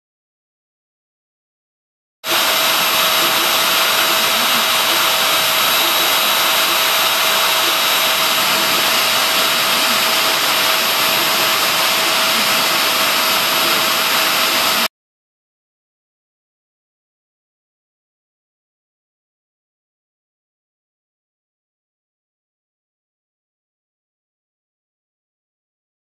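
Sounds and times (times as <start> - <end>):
router spindle whining: 2.3 - 14.9.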